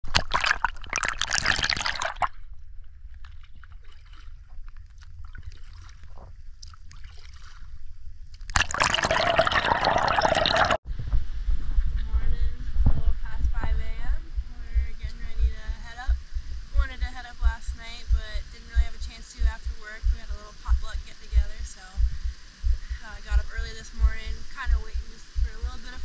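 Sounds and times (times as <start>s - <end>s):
low rumble of water: 0.0s - 26.0s
paddle splashing water: 3.2s - 7.8s.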